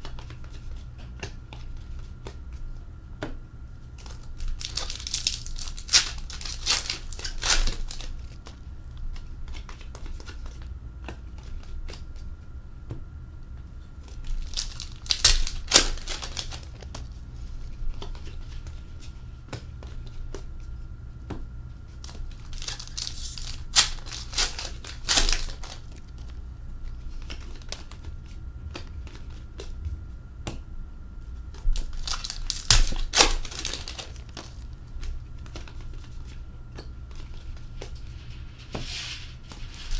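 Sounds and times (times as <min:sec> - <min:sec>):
cards rustling: 0:03.9 - 0:12.2, 0:14.0 - 0:20.5, 0:21.9 - 0:29.8, 0:31.4 - 0:39.9
foil wrappers tearing and crackling: 0:04.0 - 0:08.6, 0:14.1 - 0:17.1, 0:22.0 - 0:26.3, 0:31.7 - 0:36.2, 0:38.9 - 0:39.9.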